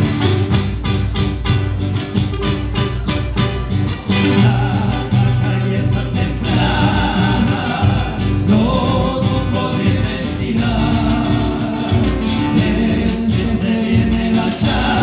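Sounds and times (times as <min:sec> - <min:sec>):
strummed acoustic guitars: 0:00.0 - 0:15.0
men singing together: 0:04.2 - 0:15.0.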